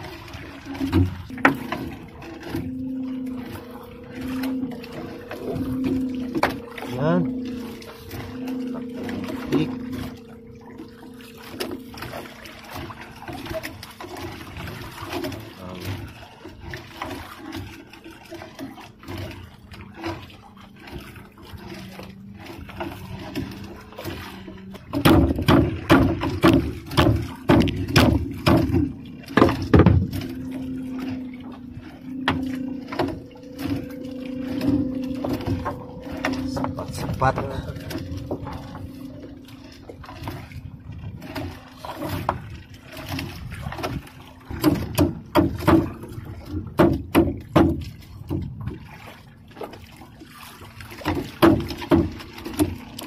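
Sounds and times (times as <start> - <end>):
motor hum: 0.0 - 53.0
water dripping and splashing: 0.0 - 53.0
net knocking against hull: 24.9 - 30.3, 43.1 - 48.8, 50.9 - 53.0.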